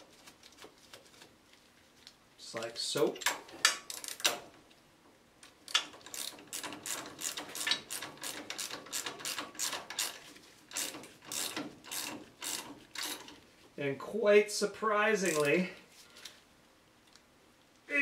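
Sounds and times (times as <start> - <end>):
ratchet wrench clicking: 5.7 - 13.3.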